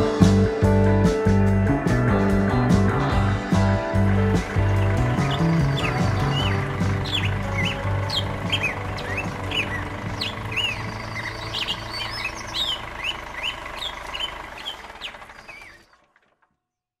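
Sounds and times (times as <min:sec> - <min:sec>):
low steady drone: 0:00.0 - 0:15.0
small birds chirping: 0:04.3 - 0:16.1.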